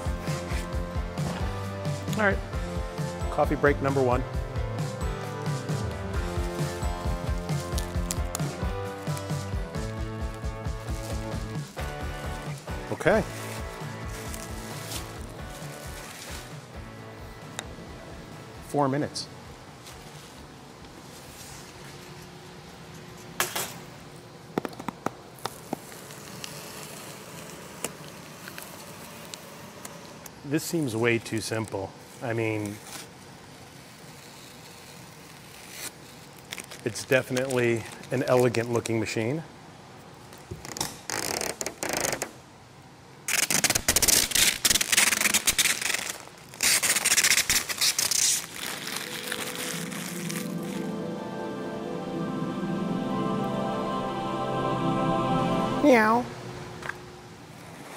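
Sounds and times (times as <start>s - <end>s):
background music: 0.0s - 19.3s, 48.5s - 56.6s
plastic film crinkling: 6.3s - 11.6s, 12.4s - 16.6s, 32.2s - 39.0s, 43.3s - 50.9s.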